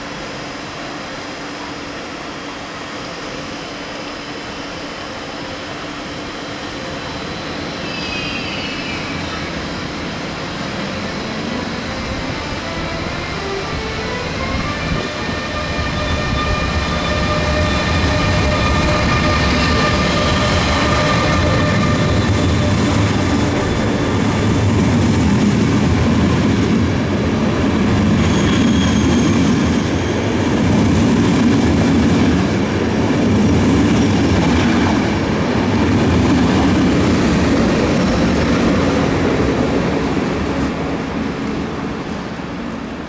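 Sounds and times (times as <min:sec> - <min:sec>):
train wheels rumbling on rail: 0:00.0 - 0:43.0.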